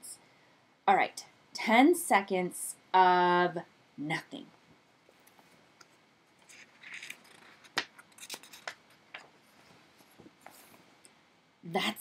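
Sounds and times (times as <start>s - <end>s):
paper book rustling: 6.4s - 10.9s.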